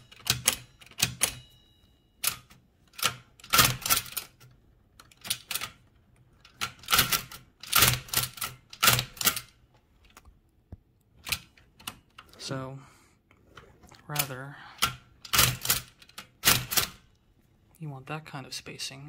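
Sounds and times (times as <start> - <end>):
typewriter clacks and clicks: 0.0 - 1.4, 2.2 - 5.8, 6.4 - 9.6, 14.1 - 17.0.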